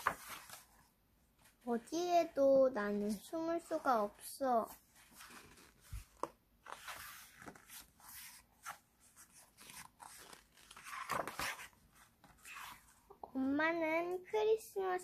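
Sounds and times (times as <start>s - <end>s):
book pages turning: 0.0s - 0.8s, 4.7s - 13.0s.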